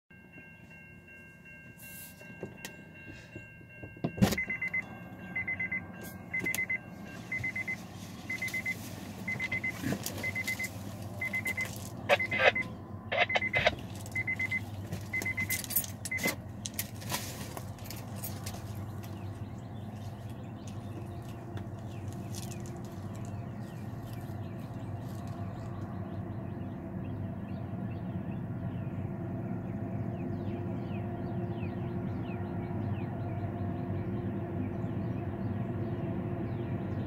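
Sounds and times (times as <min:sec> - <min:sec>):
steady low hum: 0:00.7 - 0:37.0
high electronic beep: 0:04.4 - 0:04.8, 0:05.4 - 0:16.3.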